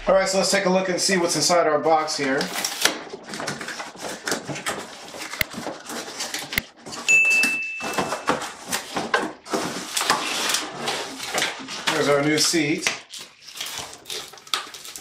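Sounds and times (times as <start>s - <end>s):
cardboard flaps scraping and rustling: 2.2s - 7.1s, 7.8s - 12.8s.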